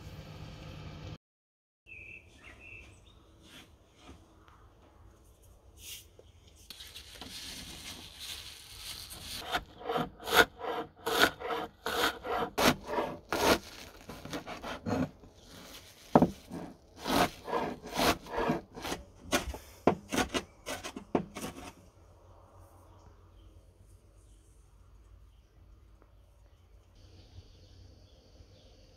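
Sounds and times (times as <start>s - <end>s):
rustling scrape: 5.2s - 21.9s
knife chopping leaves: 9.1s - 21.6s.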